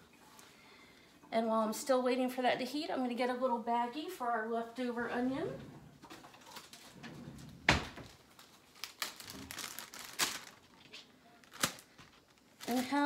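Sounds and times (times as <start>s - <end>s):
plastic bag crinkling: 8.0s - 13.0s.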